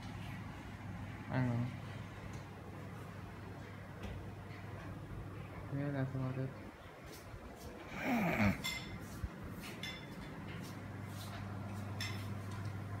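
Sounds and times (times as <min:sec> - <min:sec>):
air conditioner humming: 0:00.0 - 0:13.0
short breathy vocal sound: 0:07.9 - 0:08.6
tableware clinking: 0:08.4 - 0:10.4, 0:12.0 - 0:12.4.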